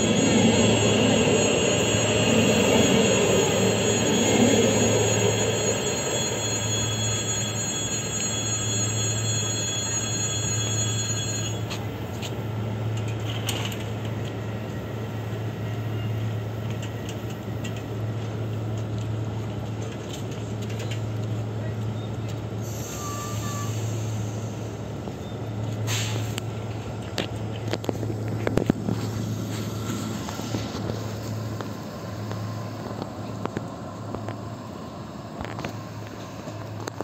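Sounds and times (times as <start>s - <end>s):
high wheel squeal tones: 0.0s - 11.8s, 22.0s - 26.1s
train rolling noise: 0.0s - 37.0s.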